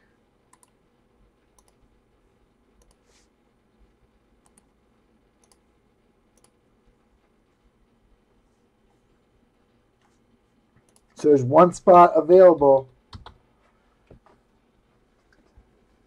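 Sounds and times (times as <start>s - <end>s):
faint computer mouse clicks: 0.5s - 0.8s, 1.6s - 1.8s, 2.8s - 3.1s, 4.4s - 4.7s, 5.4s - 5.6s, 6.4s - 6.6s.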